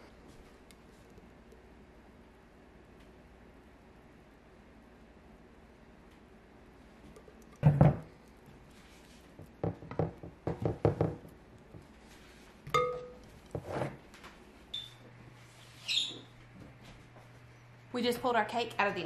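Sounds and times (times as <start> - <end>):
dish thudding on countertop: 7.6 - 8.1.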